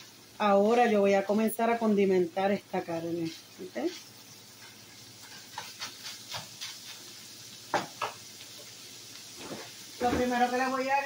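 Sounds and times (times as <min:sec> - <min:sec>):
meat sizzling in a skillet: 0:00.0 - 0:11.0
spatula scraping a pan: 0:03.0 - 0:07.4.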